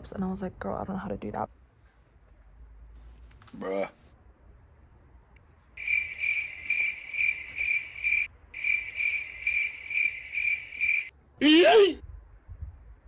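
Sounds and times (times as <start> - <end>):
cricket chirping: 5.8 - 11.1.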